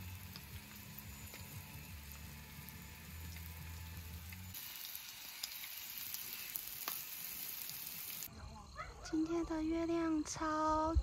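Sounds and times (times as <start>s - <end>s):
food sizzling in a hot pan: 0.0s - 8.3s.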